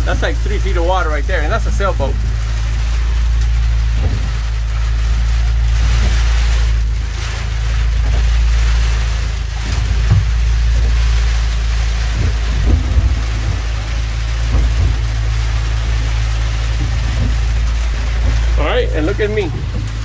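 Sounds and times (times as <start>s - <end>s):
constant low hum: 0.0s - 20.0s
rain and wind on a boat cabin: 0.0s - 20.0s
short knocks: 9.6s - 18.6s.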